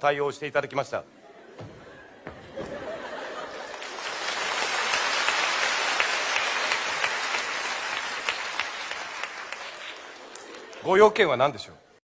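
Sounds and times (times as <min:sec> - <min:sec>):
audience applauding: 0:02.5 - 0:11.2.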